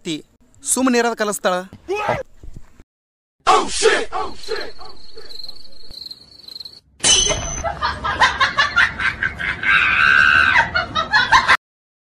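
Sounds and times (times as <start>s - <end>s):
laughter sound effect: 7.4s - 9.9s, 10.5s - 11.6s.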